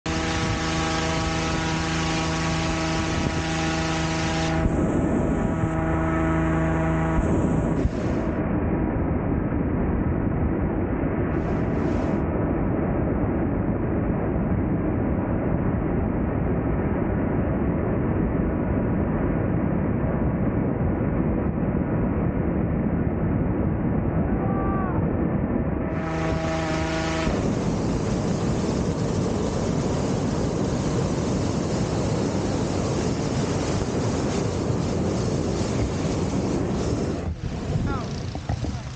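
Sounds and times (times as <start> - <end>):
inflator fan engine: 0.0 - 9.3, 11.1 - 13.2, 25.8 - 38.9
propane burner roaring: 0.0 - 9.3, 10.6 - 17.7, 25.8 - 38.9.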